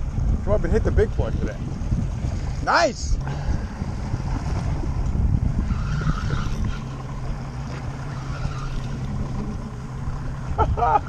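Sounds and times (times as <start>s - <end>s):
boat engine humming: 0.0s - 11.0s
water noise: 0.0s - 11.0s
wind: 0.0s - 11.0s.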